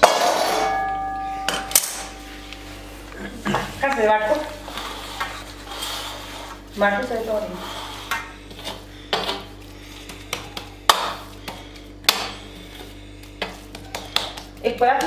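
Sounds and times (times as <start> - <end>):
spatula scraping sticky mixture: 4.0 - 15.0.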